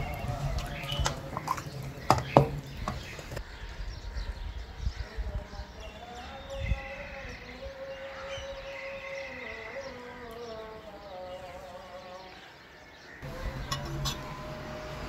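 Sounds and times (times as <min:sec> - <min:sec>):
low hum: 0:13.2 - 0:15.0
slow melody with wavering notes: 0:13.2 - 0:15.0.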